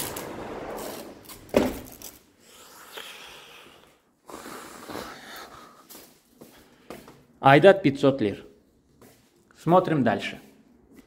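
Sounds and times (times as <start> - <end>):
street noise: 0.0 - 2.0
door thudding shut: 1.5 - 1.9.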